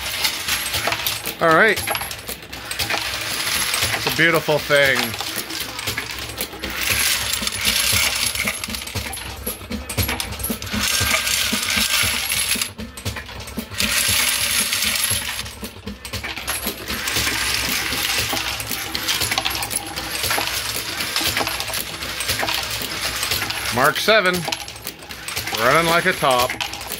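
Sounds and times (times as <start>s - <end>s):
brass cases clinking: 0.0s - 26.9s
reloading press clattering: 0.0s - 26.9s.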